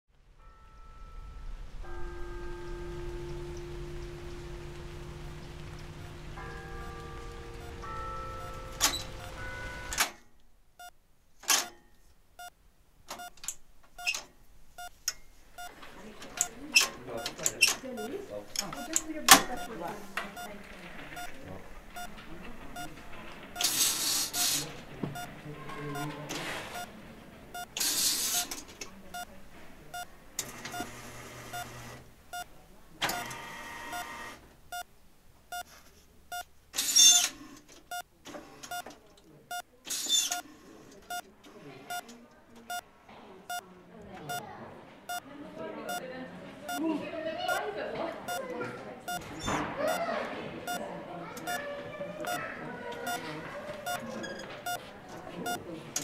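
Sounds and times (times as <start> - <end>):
high squeaky tones: 0.4 - 10.2, 14.0 - 28.6
short electronic beeps: 11.6 - 12.5, 13.2 - 13.4, 17.2 - 20.5, 21.1 - 22.2, 23.6 - 25.3, 36.3 - 37.2.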